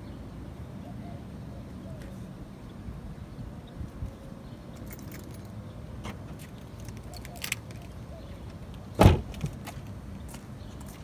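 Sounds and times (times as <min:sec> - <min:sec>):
car door shutting: 0:09.0 - 0:09.6.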